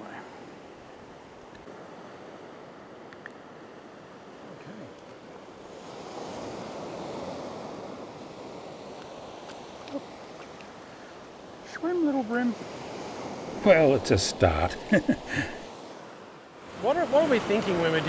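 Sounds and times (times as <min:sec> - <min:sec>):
ocean surf breaking on beach: 0:00.0 - 0:18.0.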